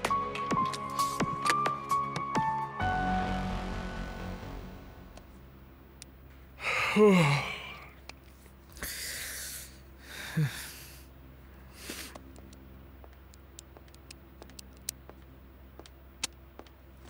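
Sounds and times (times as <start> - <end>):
man groaning low: 6.6 - 8.0
man sighing heavily: 6.6 - 8.0, 8.8 - 11.1.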